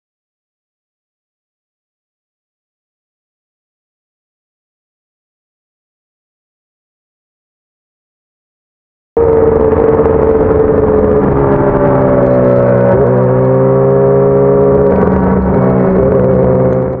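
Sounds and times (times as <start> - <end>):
motorcycle engine running: 9.2 - 17.0.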